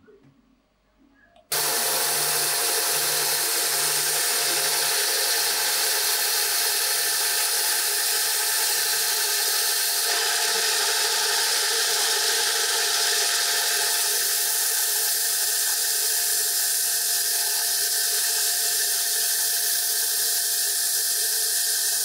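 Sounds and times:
belt sander sanding wood: 1.5s - 22.0s
sander motor tone: 1.5s - 22.0s.

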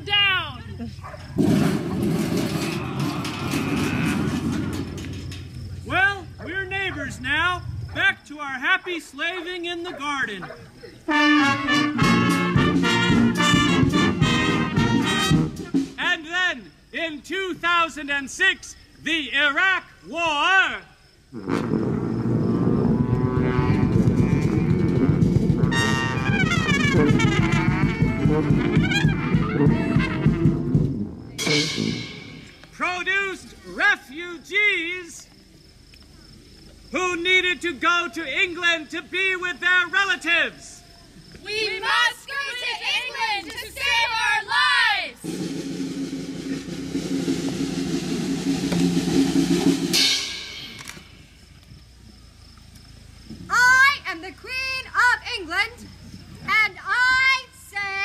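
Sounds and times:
brass band playing: 11.1s - 16.1s, 21.4s - 32.7s, 45.2s - 50.9s
live percussion music: 11.7s - 16.1s, 23.9s - 32.6s, 45.2s - 51.2s
cymbal crash ringing: 31.4s - 32.6s, 45.3s - 50.8s.

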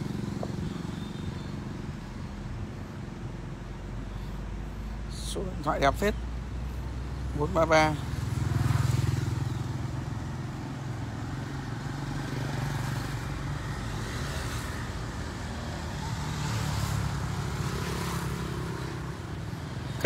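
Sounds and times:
road noise: 0.0s - 20.0s
vehicle engine humming: 0.0s - 20.0s.

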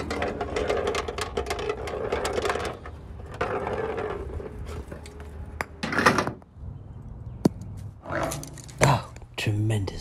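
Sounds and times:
ball rattling down downspout: 0.0s - 6.4s.

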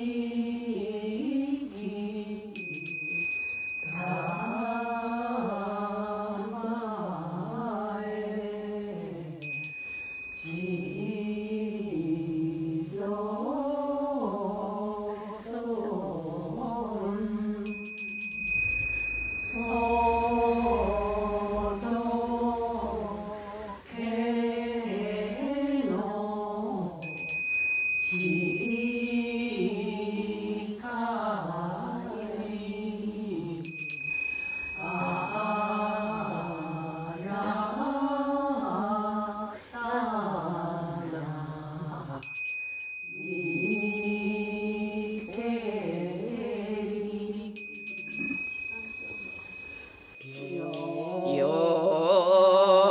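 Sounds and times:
person singing a slow chant: 0.0s - 9.6s, 10.4s - 17.9s, 18.5s - 27.4s, 28.0s - 42.3s, 43.1s - 52.9s
small bell ringing: 2.6s - 5.8s, 9.4s - 11.8s, 17.6s - 21.8s, 27.0s - 29.6s, 33.6s - 37.6s, 42.2s - 45.8s, 47.6s - 51.1s.

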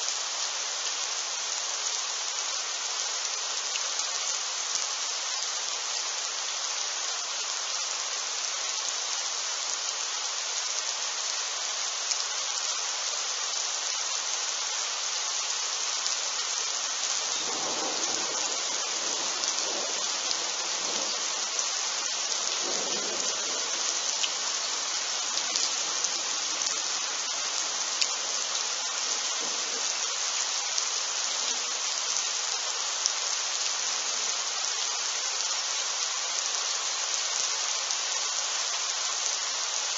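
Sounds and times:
rain hissing: 0.0s - 39.9s
distant thunder rumble: 17.4s - 21.4s, 22.6s - 24.2s.

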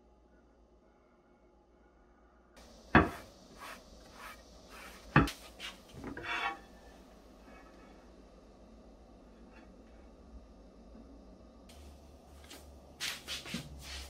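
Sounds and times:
grill plate knocking on stone: 2.9s - 3.3s.

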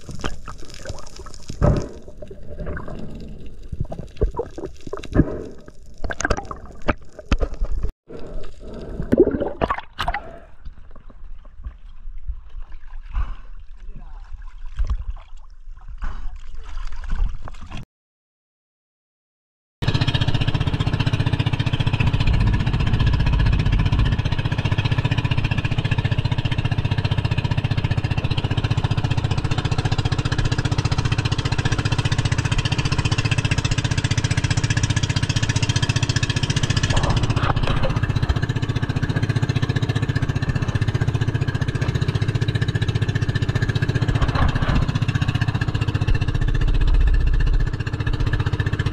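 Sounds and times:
boat engine running: 19.8s - 48.9s
water sloshing against boat: 33.4s - 47.2s.

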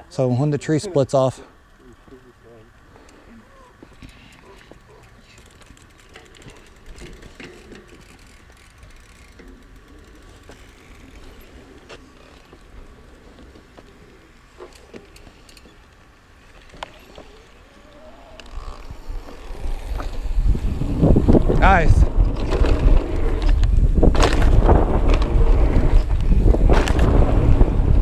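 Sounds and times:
bike drivetrain rattling and clicking: 1.6s - 28.0s
bike tyres rumbling on dirt: 3.6s - 28.0s
wind on microphone: 18.5s - 28.0s.

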